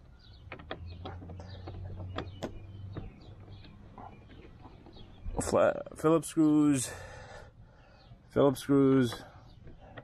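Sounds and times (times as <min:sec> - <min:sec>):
plastic clicks and taps: 0:00.3 - 0:04.8.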